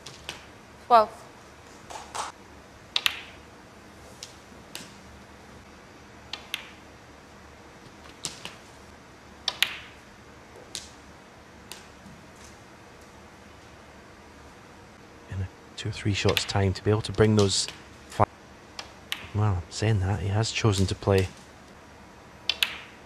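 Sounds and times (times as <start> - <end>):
snooker balls clicking: 1.7 - 3.4, 6.2 - 6.8, 7.8 - 8.8, 9.4 - 11.0, 16.2 - 17.8, 18.7 - 19.4, 22.4 - 23.0.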